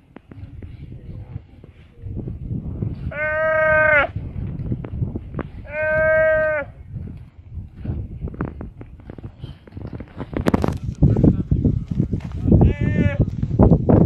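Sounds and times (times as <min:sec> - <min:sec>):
buffalo calf bleating: 0:03.1 - 0:04.2, 0:05.6 - 0:06.8, 0:12.6 - 0:13.3.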